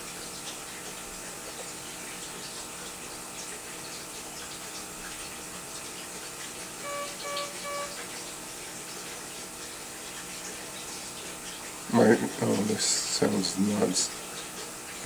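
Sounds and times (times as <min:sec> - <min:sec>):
patient monitor beeps: 0:06.8 - 0:08.1.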